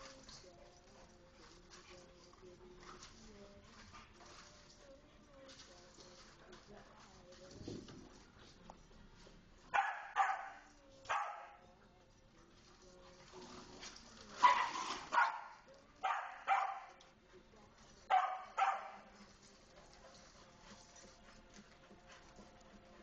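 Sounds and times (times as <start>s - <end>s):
dog barking: 9.7s - 11.6s, 14.4s - 17.0s, 18.1s - 19.1s.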